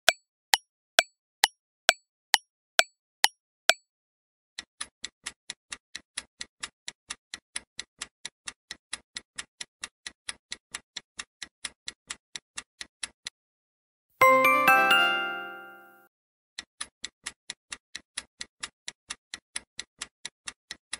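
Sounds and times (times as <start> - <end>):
multi-tone chime: 14.2 - 16.0.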